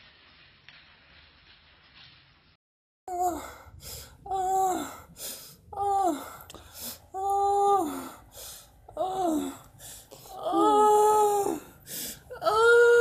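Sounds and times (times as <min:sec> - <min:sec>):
person wailing sobs: 0:04.2 - 0:05.1, 0:07.1 - 0:08.3, 0:08.9 - 0:13.0
sharp gasping breaths: 0:07.9 - 0:10.3, 0:11.6 - 0:12.3.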